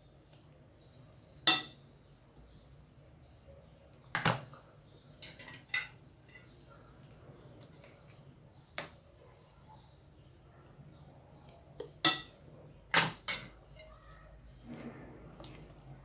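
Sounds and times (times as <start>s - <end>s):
metal spoon clinking glass bowl: 1.4s - 1.8s, 12.0s - 12.4s.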